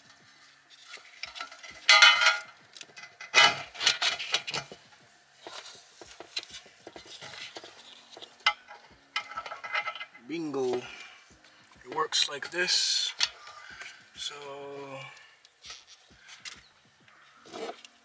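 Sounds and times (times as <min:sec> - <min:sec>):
clicking and clinking of parts: 0:00.0 - 0:04.8, 0:05.4 - 0:11.0
rattling clatter: 0:08.4 - 0:10.2.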